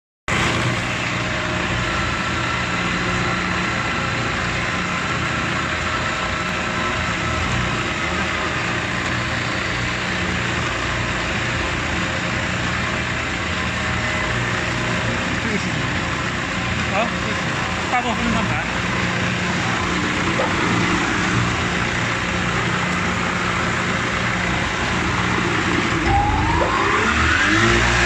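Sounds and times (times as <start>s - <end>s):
bowl cutter blades whirring: 25.1s - 28.0s.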